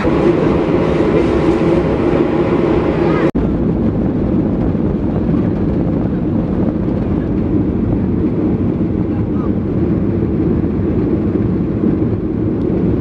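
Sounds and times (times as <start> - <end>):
jet engines rumbling in cabin: 0.0 - 13.0.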